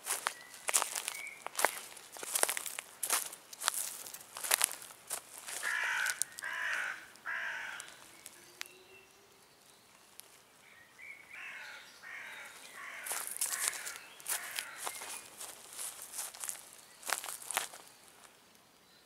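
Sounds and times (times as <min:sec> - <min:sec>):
crow cawing: 0:05.4 - 0:08.0, 0:11.3 - 0:15.2.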